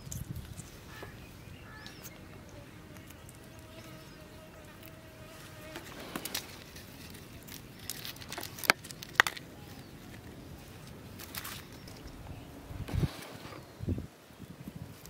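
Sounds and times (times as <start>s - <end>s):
insect buzzing: 0.0s - 7.8s
fishing gear clicks and knocks: 5.6s - 13.6s.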